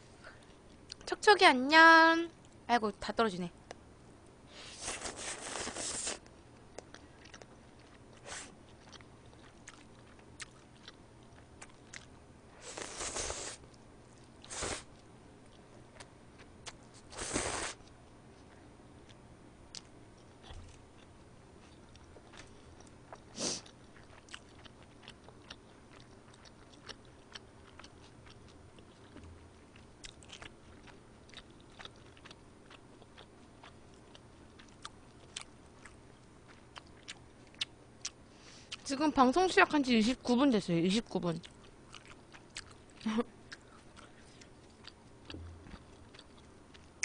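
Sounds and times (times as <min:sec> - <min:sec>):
soft chewing clicks: 0:00.3 - 0:01.1, 0:06.2 - 0:12.2, 0:13.6 - 0:17.0, 0:17.8 - 0:38.9, 0:41.3 - 0:47.0
person eating noodles: 0:04.6 - 0:06.2, 0:12.6 - 0:13.6, 0:16.6 - 0:17.8.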